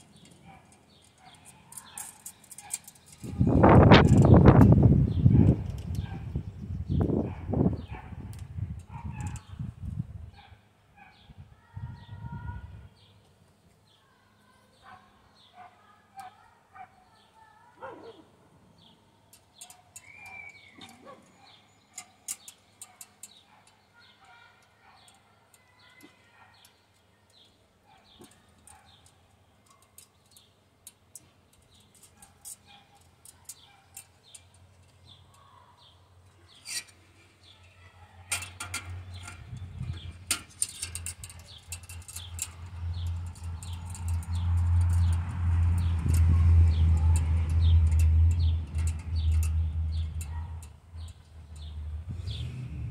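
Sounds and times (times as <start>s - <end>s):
metal clicks and clinks: 0.0s - 4.4s, 19.3s - 52.0s
faint birds chirping: 0.0s - 52.9s.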